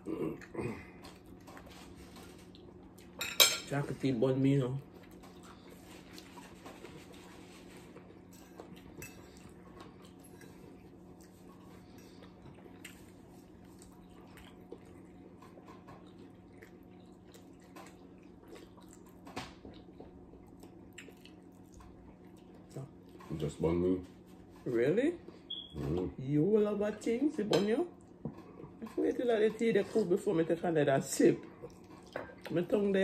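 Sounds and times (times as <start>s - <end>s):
soft chewing: 0.0s - 3.2s, 4.8s - 26.2s, 27.9s - 30.3s, 30.9s - 32.8s
steady low hum: 0.0s - 33.0s
forks clinking on plates: 3.2s - 3.7s.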